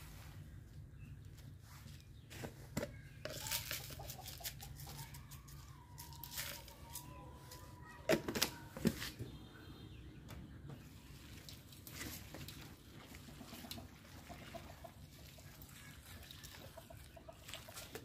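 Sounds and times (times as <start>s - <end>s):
hands rustling containers: 1.3s - 9.2s, 11.3s - 16.8s
chickens clucking: 2.4s - 5.5s, 10.6s - 18.0s.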